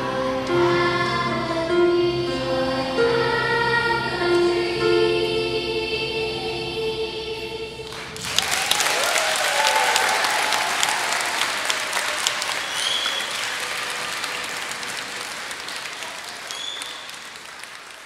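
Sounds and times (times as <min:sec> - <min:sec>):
audience applauding: 0:07.9 - 0:18.0
people cheering: 0:08.2 - 0:18.0.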